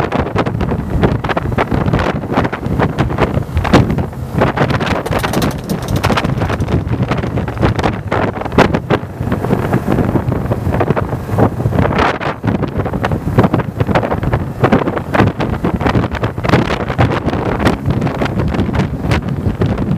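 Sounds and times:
wind buffeting microphone: 0:00.0 - 0:19.9
motorcycle engine: 0:01.8 - 0:11.6.

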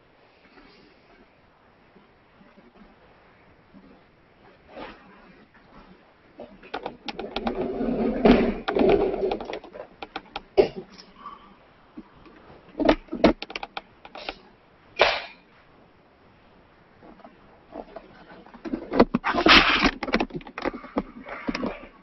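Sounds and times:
objects rustling and clattering: 0:03.8 - 0:11.2, 0:11.9 - 0:15.7, 0:16.9 - 0:22.0
sharp knocks and clicks: 0:06.7 - 0:07.6, 0:08.3 - 0:10.6, 0:12.8 - 0:14.4.

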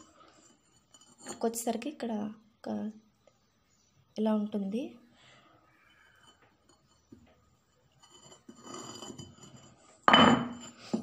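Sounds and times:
stone scraping on stone: 0:00.0 - 0:01.6, 0:06.1 - 0:11.0.

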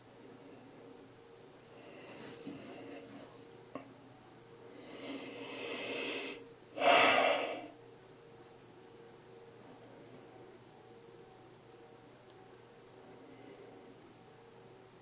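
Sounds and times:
person exhaling: 0:05.1 - 0:07.7.

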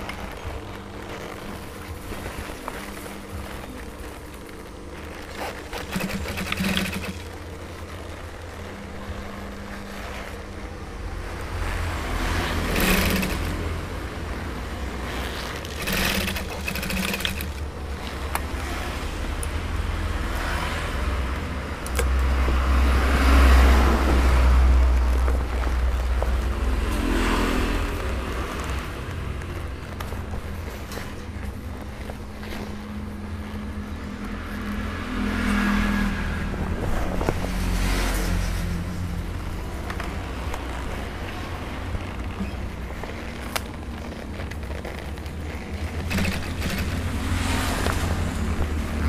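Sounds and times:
leather rustling: 0:00.0 - 0:11.8, 0:14.2 - 0:18.7, 0:24.8 - 0:34.7, 0:39.4 - 0:49.0
sewing machine stitching: 0:01.1 - 0:08.4, 0:12.3 - 0:13.9, 0:15.0 - 0:18.8, 0:44.6 - 0:48.2.

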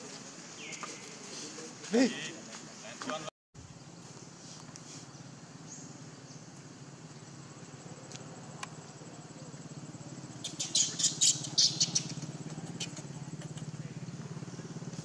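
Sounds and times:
steady low hum: 0:03.6 - 0:15.0
short high-pitched chirping calls: 0:10.4 - 0:13.7.

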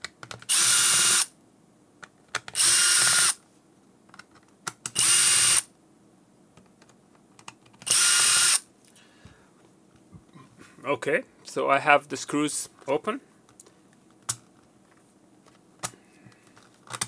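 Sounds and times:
electric screwdriver motor whine: 0:00.5 - 0:01.3, 0:02.6 - 0:03.4, 0:05.0 - 0:05.6, 0:07.8 - 0:08.6.

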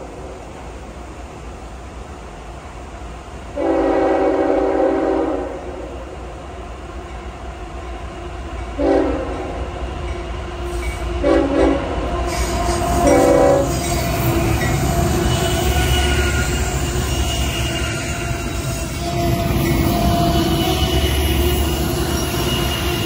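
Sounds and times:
steel wheels on rail: 0:00.0 - 0:23.0
train air horn blasts: 0:03.6 - 0:05.9, 0:08.8 - 0:09.6, 0:10.7 - 0:23.0
diesel locomotive rumble: 0:08.6 - 0:23.0.

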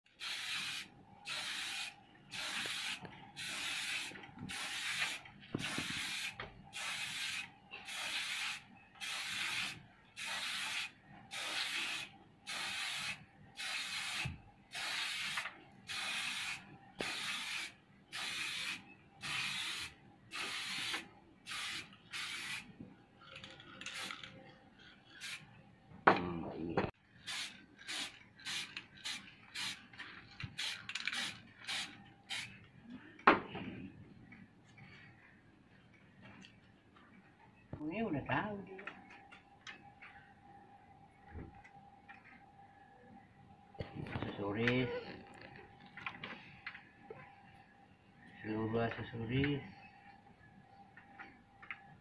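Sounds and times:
spray-paint can spraying: 0:00.1 - 0:22.7, 0:23.9 - 0:24.3, 0:25.2 - 0:25.4, 0:27.2 - 0:29.8, 0:30.6 - 0:32.5.

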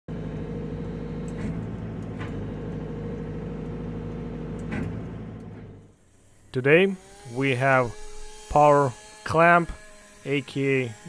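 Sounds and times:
excavator diesel engine running: 0:00.1 - 0:06.0.

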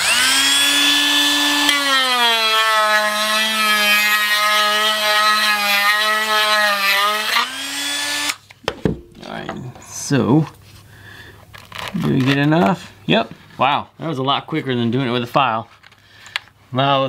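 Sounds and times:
rotary tool sanding whine: 0:00.0 - 0:08.4.

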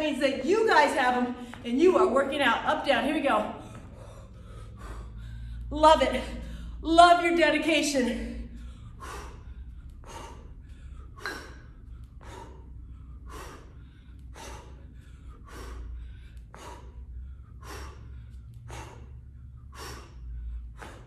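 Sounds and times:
woman breathing hard: 0:00.0 - 0:02.0, 0:03.2 - 0:21.0
low steady hum: 0:00.0 - 0:21.0.

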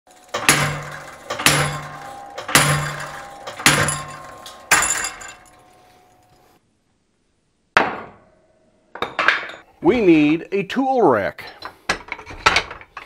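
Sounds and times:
hammer ringing on anvil: 0:00.4 - 0:06.1.

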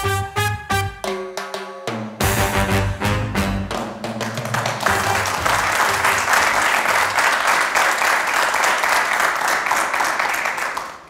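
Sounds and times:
intro music: 0:02.2 - 0:04.1
audience applause: 0:03.8 - 0:11.0.

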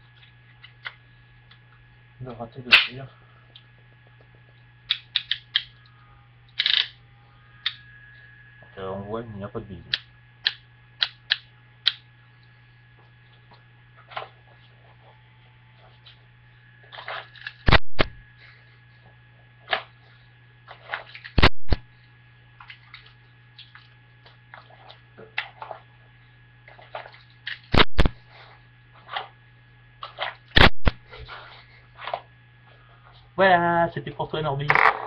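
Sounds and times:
gun handling clicks: 0:04.9 - 0:05.7, 0:06.6 - 0:06.9.

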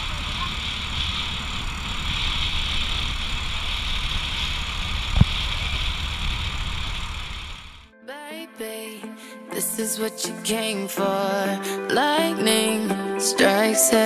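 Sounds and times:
road and wind noise: 0:00.0 - 0:07.9
small motorcycle engine running: 0:00.0 - 0:07.9.

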